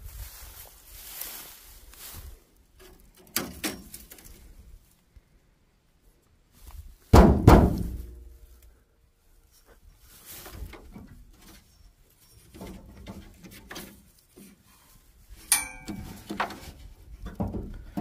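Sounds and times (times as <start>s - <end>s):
sharp metallic clank: 15.4s - 16.3s.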